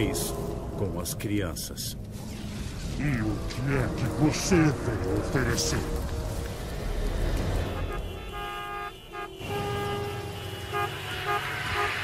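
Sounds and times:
low traffic hum: 0.0 - 12.0
car horns honking: 7.5 - 12.0.

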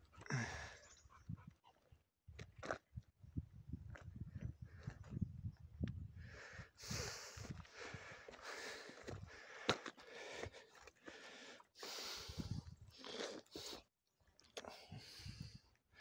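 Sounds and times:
close breathing: 0.0 - 1.1, 6.1 - 13.9, 14.6 - 16.0.

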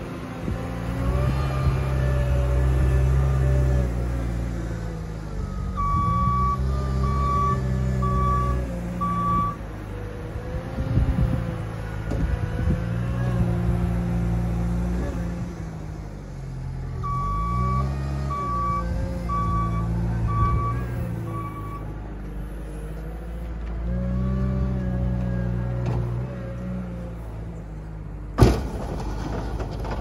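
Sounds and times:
diesel engine changing revs: 0.0 - 30.0
reversing alarm beeping: 5.4 - 9.6, 17.0 - 21.9
clunks: 24.7 - 26.4, 28.4 - 30.0.

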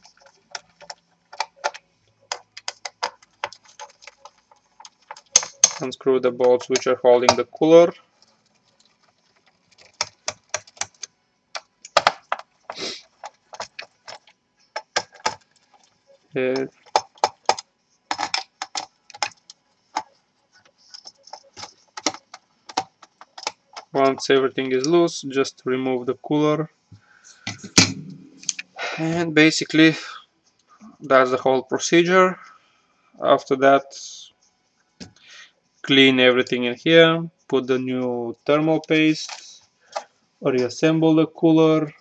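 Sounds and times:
fingers clicking on computer parts: 0.0 - 25.0.

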